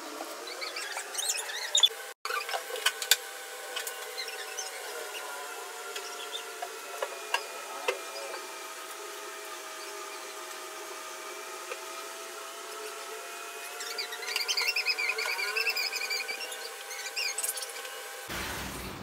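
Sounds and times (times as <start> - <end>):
small electric motor humming: 0.0 - 18.3
high warbling chirps: 13.7 - 17.8.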